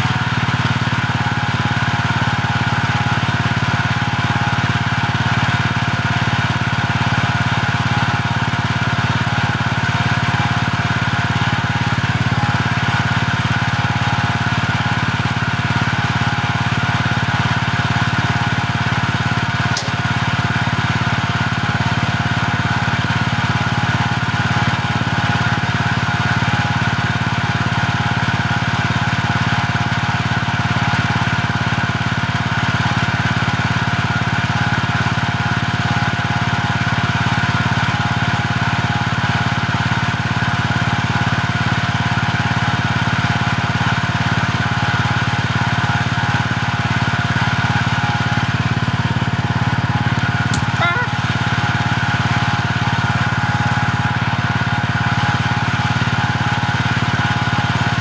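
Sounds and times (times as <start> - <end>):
small engine idling: 0.0 - 58.0.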